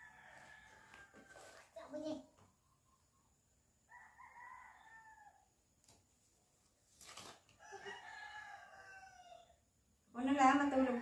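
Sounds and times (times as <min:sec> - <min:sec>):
distant rooster crowing: 0:00.0 - 0:01.7, 0:03.8 - 0:05.6, 0:07.6 - 0:09.7.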